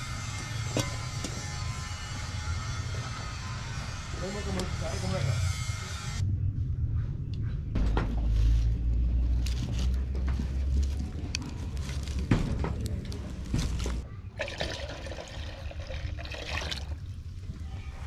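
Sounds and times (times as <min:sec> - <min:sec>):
milk pouring into metal pot: 0:14.4 - 0:17.1.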